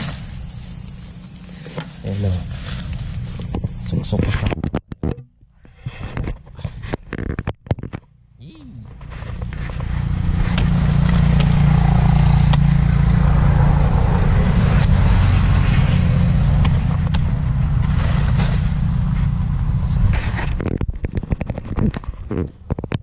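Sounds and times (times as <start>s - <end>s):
vehicle engine rumbling: 0.0s - 23.0s.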